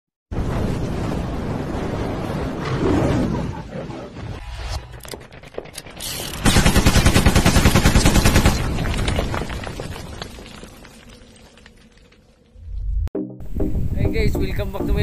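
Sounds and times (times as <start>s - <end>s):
machine-gun fire: 6.4s - 8.9s.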